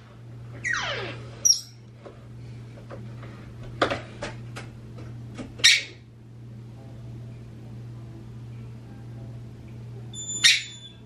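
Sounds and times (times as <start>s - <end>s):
parrots squeaking and chirping: 0.6s - 1.8s, 10.2s - 11.0s.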